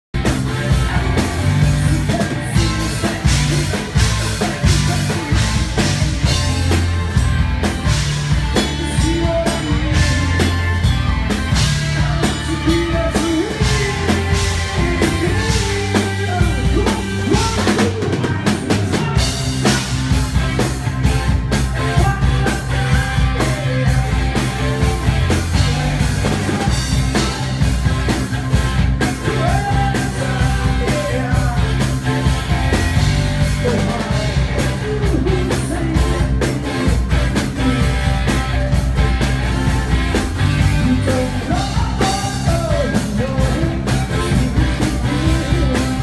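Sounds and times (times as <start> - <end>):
drums steady beat: 0.1 - 46.0
live rock band playing: 0.1 - 46.0.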